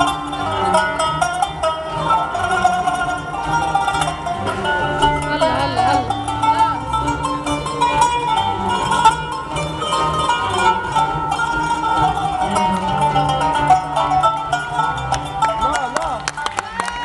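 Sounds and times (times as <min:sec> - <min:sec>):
bass line: 0:00.0 - 0:17.0
plucked qanun notes: 0:00.0 - 0:17.0
violins: 0:00.0 - 0:17.0.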